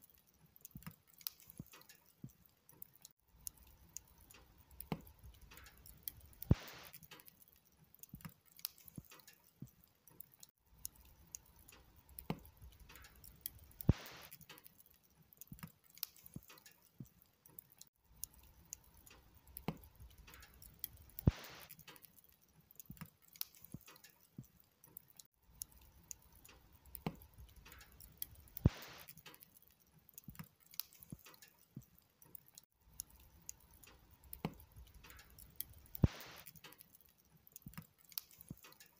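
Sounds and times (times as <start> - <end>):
burning wood crackling: 0.0 - 38.9
fire popping: 0.0 - 38.9
flames hissing: 5.9 - 7.1, 12.4 - 14.4, 20.6 - 21.8, 28.2 - 29.3, 34.4 - 36.8.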